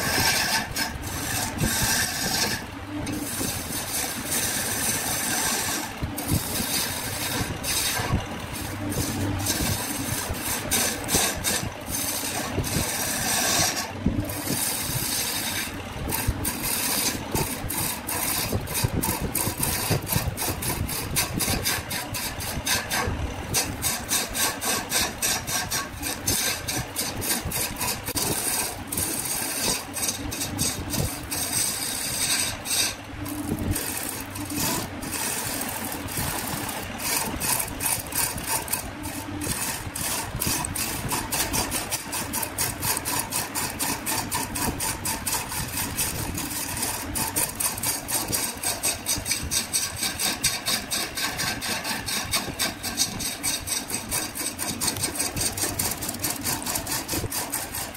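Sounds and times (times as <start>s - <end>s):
turning tool scraping wood: 0.0s - 57.9s
wood lathe running: 0.0s - 57.9s.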